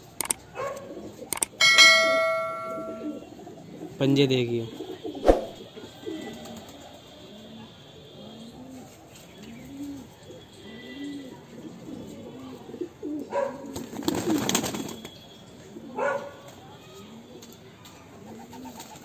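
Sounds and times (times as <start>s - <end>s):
pigeons cooing: 0.5s - 14.8s, 15.6s - 16.4s, 18.1s - 19.0s
flapping wings: 5.2s - 5.6s, 13.7s - 15.2s.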